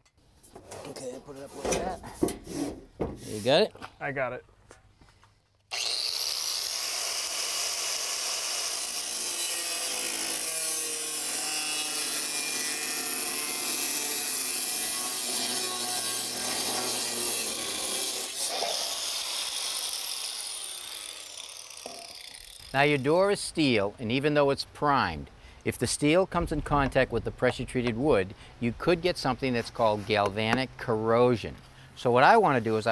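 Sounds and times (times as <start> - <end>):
angle grinder cutting steel: 5.7 - 23.0.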